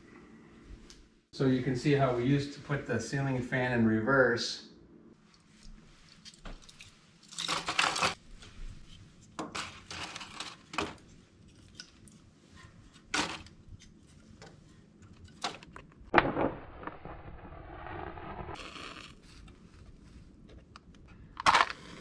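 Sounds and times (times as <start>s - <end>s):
loud sharp scrape: 16.2s - 19.2s.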